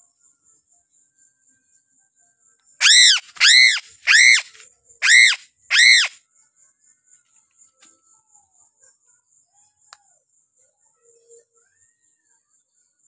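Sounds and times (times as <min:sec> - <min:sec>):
crow calling: 0:02.8 - 0:06.2.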